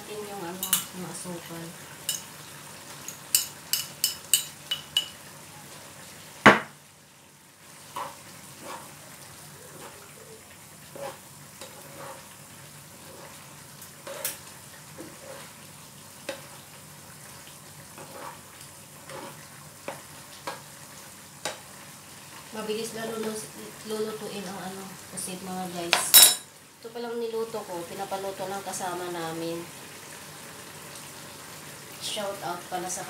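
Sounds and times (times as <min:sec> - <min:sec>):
squid sizzling in a pan: 0:00.0 - 0:33.0
spoon scraping and clicking pan: 0:00.6 - 0:00.9, 0:03.0 - 0:05.2, 0:14.0 - 0:14.4.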